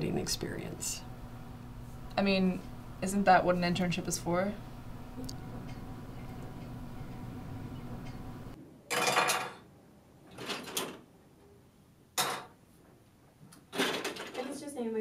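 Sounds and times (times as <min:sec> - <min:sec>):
room hum: 0:00.0 - 0:15.0
plastic toys rattling on table: 0:13.7 - 0:14.6.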